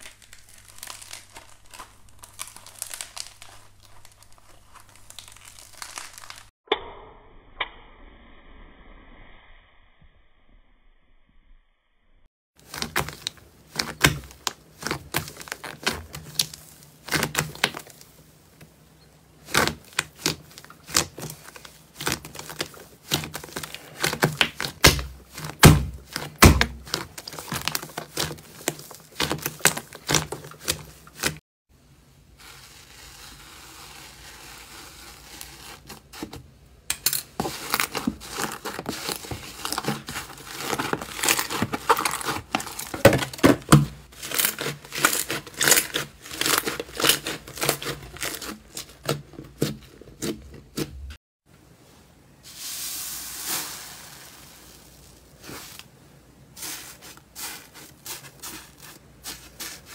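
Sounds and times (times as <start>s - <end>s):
soft steady hiss: 51.5s - 58.2s.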